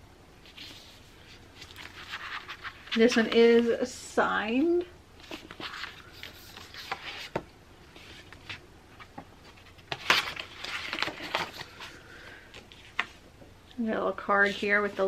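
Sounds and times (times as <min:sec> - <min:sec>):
paper rustling: 0:00.4 - 0:03.7, 0:05.2 - 0:13.2.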